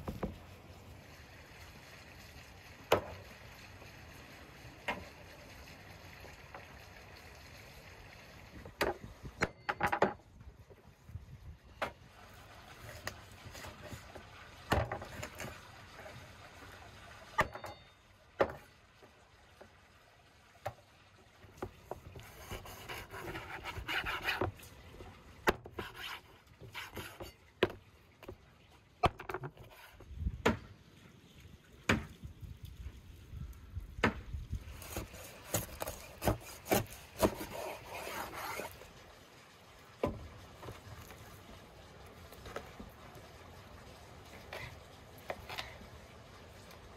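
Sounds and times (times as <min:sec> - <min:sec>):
blade scraping through meat: 0:34.8 - 0:38.8
cleaver chopping on wooden board: 0:34.9 - 0:37.7.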